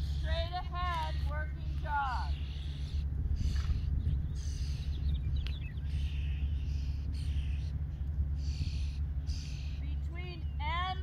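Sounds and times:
bird calling: 0:00.0 - 0:11.0
wind buffeting microphone: 0:00.0 - 0:11.0.

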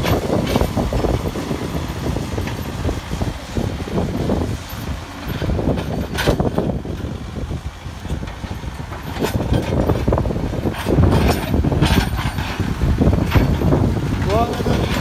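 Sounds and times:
knocks and clanks: 0:00.0 - 0:01.3, 0:04.8 - 0:07.0, 0:08.0 - 0:15.0
diesel engine running under load: 0:00.0 - 0:15.0.

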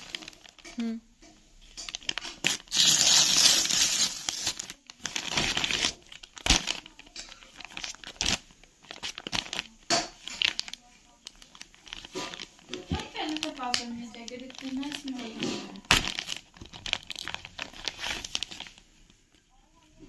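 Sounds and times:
paper and plastic rustling: 0:00.0 - 0:00.8, 0:01.6 - 0:20.0
paper bag tearing: 0:01.9 - 0:07.0, 0:07.6 - 0:09.8, 0:11.5 - 0:18.8.

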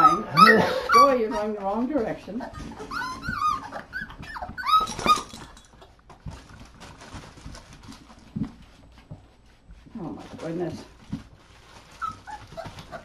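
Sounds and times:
puppies whining: 0:00.0 - 0:06.1, 0:11.7 - 0:13.0
paws tapping on floor: 0:00.9 - 0:13.0.

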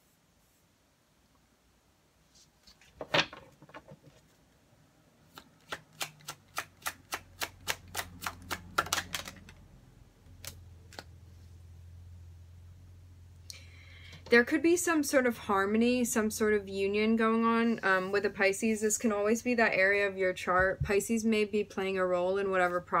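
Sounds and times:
sharp card snap: 0:05.3 - 0:09.4
cards being shuffled: 0:05.3 - 0:09.6, 0:10.3 - 0:11.1.

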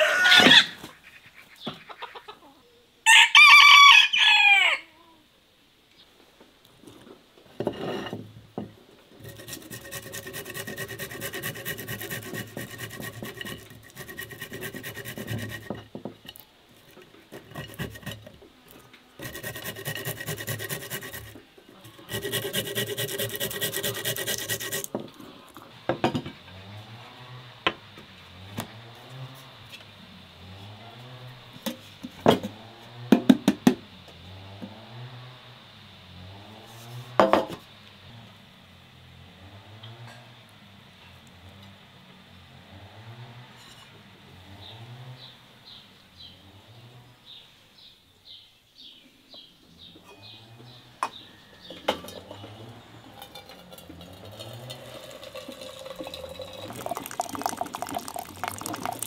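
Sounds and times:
hand grater rasping on food: 0:09.2 - 0:15.9, 0:17.3 - 0:18.3, 0:19.2 - 0:24.9.

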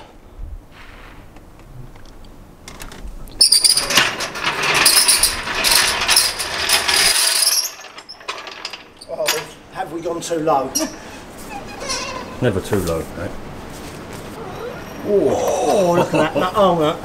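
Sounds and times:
trolley jack rattling on casters: 0:03.4 - 0:09.6.

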